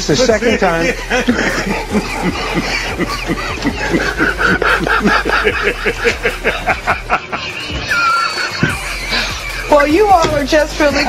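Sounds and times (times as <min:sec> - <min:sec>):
people laughing hard: 0:00.0 - 0:11.0.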